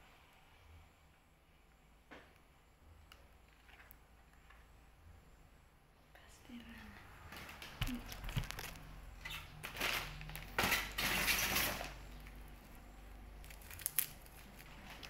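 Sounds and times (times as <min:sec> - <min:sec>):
plastic packaging crinkling: 0:07.9 - 0:15.0.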